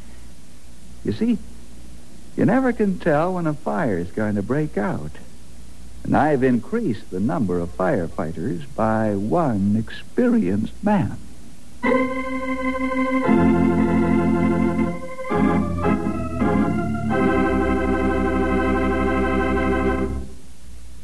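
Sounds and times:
narration: 1.0 - 1.6, 2.3 - 5.4, 6.0 - 12.1
organ sustained chords: 11.8 - 20.4.

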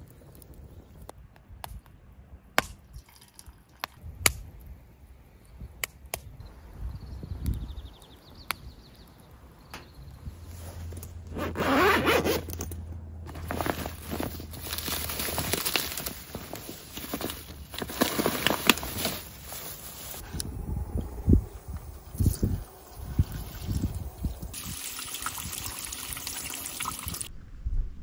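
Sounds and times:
low hum: 12.4 - 16.4, 20.2 - 24.6, 27.3 - 28.0.

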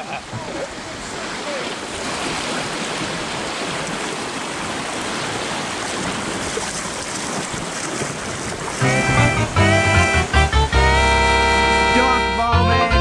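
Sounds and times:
river water rushing: 0.0 - 12.3
music: 8.8 - 13.0.

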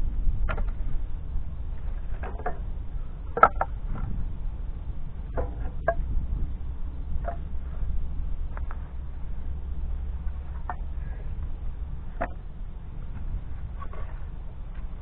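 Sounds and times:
steady low rumble: 0.0 - 15.0
firewood pieces knocking together: 3.4 - 3.7.

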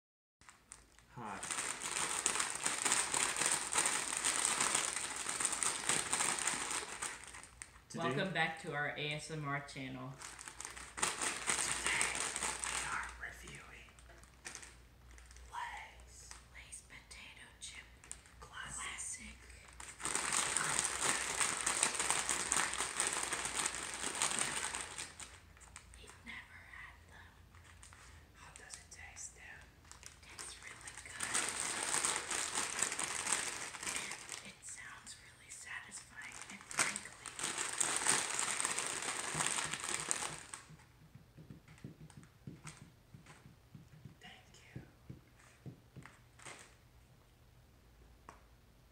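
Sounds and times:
chip bags crinkling: 0.4 - 8.2, 10.1 - 15.5, 19.6 - 26.1, 27.6 - 40.8, 46.4 - 46.8
faint taps and clicks: 40.6 - 46.2.

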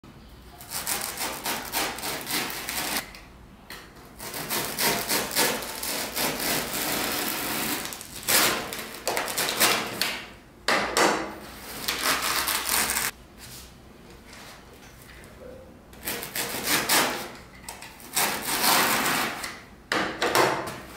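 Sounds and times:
knife blade scraping foam: 0.6 - 3.0, 4.2 - 9.8, 11.6 - 13.1, 16.0 - 17.3, 18.0 - 19.5.

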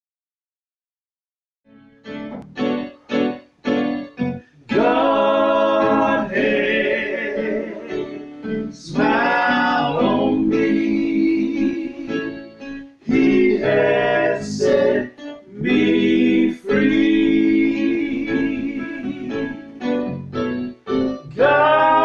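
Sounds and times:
men singing gospel in harmony: 4.7 - 12.4, 13.1 - 19.7, 21.4 - 22.0.

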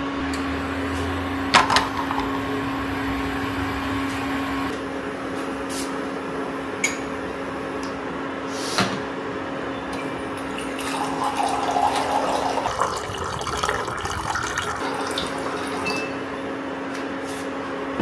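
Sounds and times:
water pouring into mug: 10.2 - 16.0.

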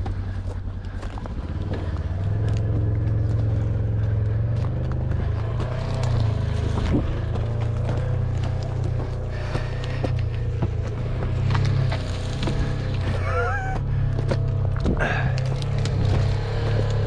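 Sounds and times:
footsteps on dry dirt: 0.0 - 17.0
utility vehicle engine driving: 0.0 - 17.0.

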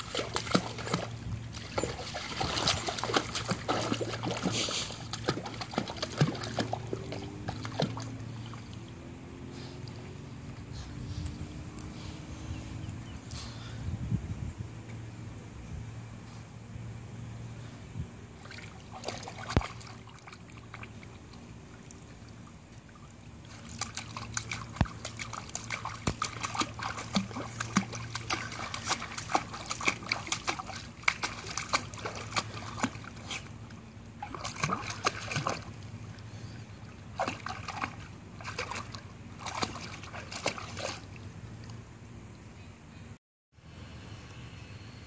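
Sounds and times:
dog splashing pool water: 0.0 - 10.7, 18.3 - 41.9
steady low hum: 0.0 - 45.0.

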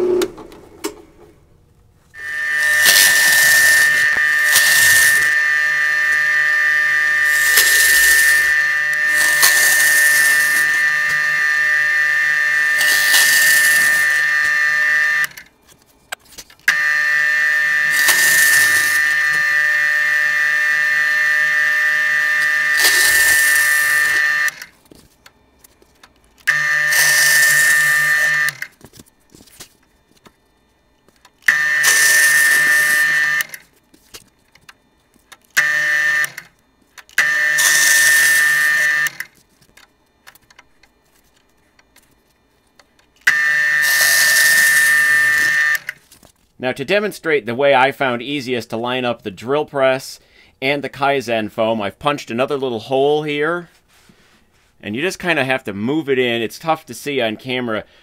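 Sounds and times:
bit tearing through foam: 2.2 - 15.3
drill press whining: 2.2 - 15.6, 16.6 - 24.9, 26.0 - 28.9, 31.1 - 42.1, 42.7 - 46.0.

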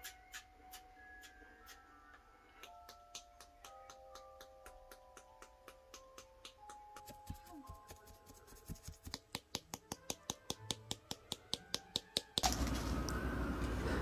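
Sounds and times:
ticking beat of sharp clicks: 2.6 - 7.8.

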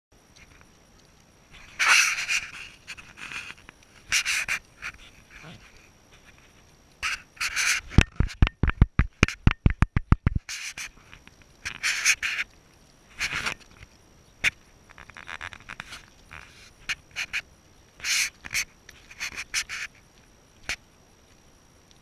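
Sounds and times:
rapid sharp knocks: 8.4 - 10.4.

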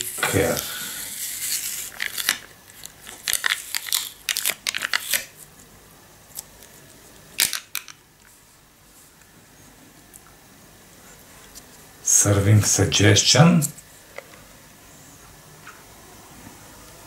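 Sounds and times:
sticker peeling off foil lid: 0.0 - 5.5.

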